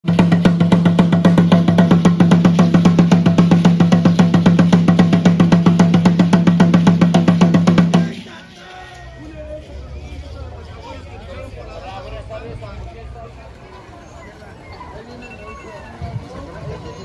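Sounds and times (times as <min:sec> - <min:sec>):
wooden drum beaten rapidly: 0:00.0 - 0:08.3.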